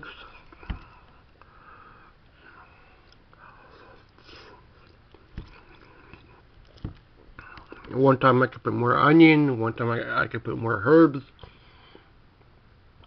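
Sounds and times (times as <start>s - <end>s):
person chewing food: 3.0s - 7.9s.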